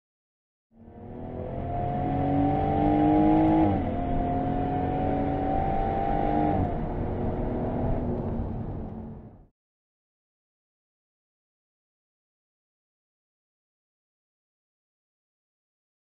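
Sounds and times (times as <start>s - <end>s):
sports car engine accelerating: 0.8s - 9.5s.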